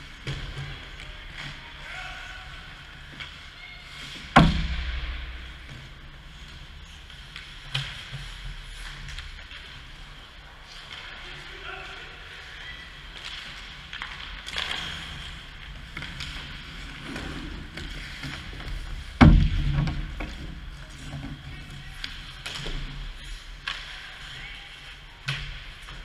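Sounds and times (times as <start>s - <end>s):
sticks and puck clacking: 0.0s - 26.0s
loud heavy thud: 4.4s - 5.7s
skate blades scraping ice: 5.4s - 26.0s.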